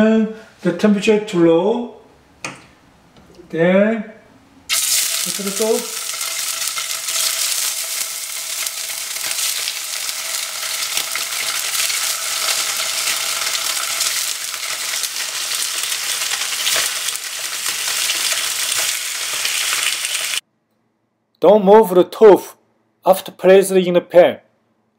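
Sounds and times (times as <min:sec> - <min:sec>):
tofu sizzling in hot oil: 0:04.7 - 0:20.4.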